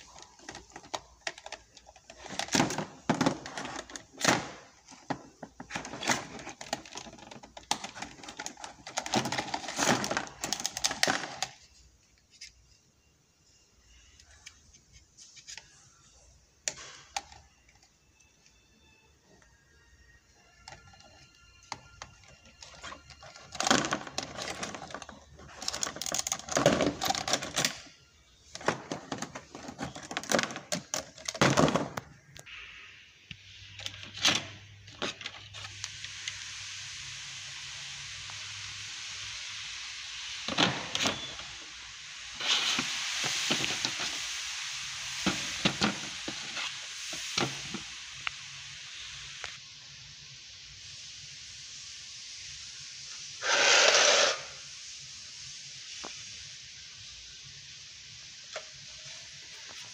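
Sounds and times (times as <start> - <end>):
plastic clicks and rattles: 0.0 - 11.6, 20.7 - 27.9, 28.5 - 32.4
steady hiss: 0.0 - 59.9.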